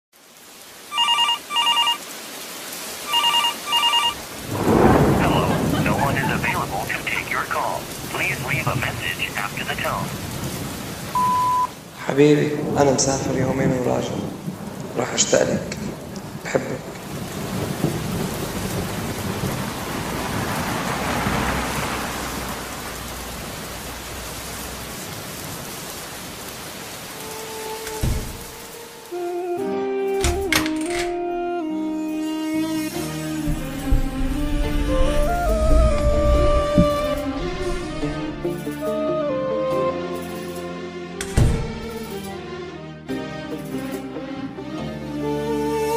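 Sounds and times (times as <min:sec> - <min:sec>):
rain hiss: 0:00.2 - 0:30.7, 0:31.6 - 0:42.5, 0:45.0 - 0:45.9
telephone ringing: 0:00.9 - 0:02.1, 0:03.1 - 0:04.2, 0:11.2 - 0:11.7
thunder rumbling: 0:04.2 - 0:27.2, 0:33.0 - 0:38.6.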